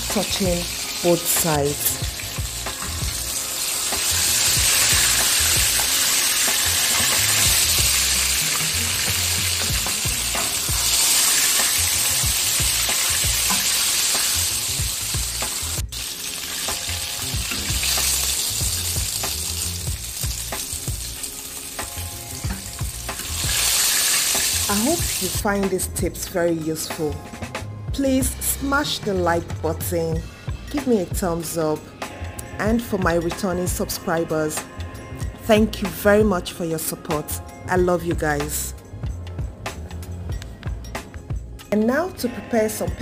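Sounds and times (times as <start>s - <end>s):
fish sizzling in hot oil: 0.0s - 25.5s.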